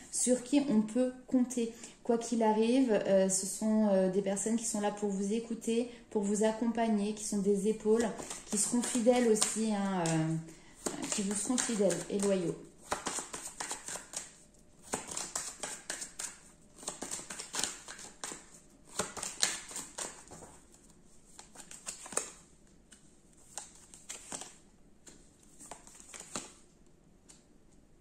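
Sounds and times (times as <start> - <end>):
cards being shuffled: 7.9 - 26.6.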